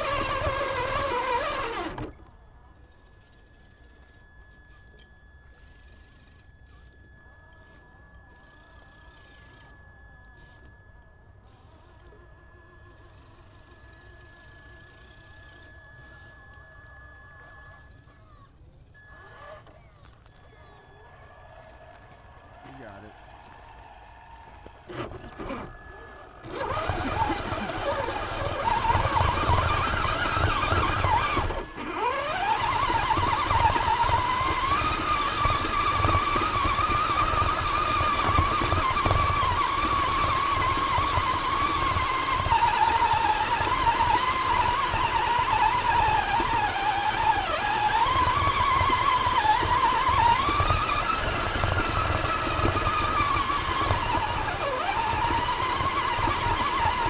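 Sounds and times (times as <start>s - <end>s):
tyres rolling over rough ground: 0.0s - 2.3s, 19.3s - 57.0s
electric motor whining: 0.0s - 57.0s.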